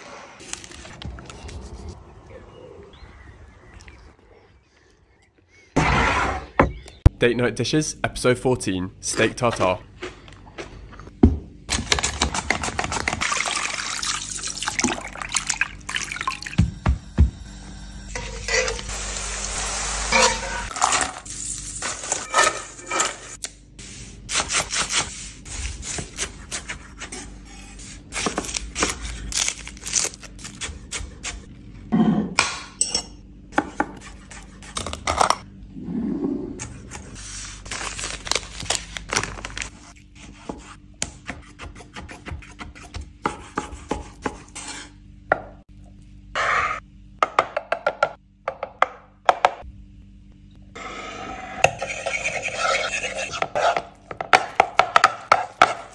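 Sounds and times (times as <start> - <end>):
cutlery clinking and scraping: 22.2 - 23.4.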